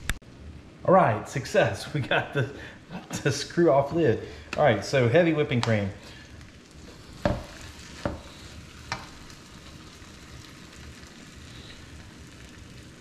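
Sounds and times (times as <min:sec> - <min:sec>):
food sizzling in a wok: 0:06.0 - 0:13.0.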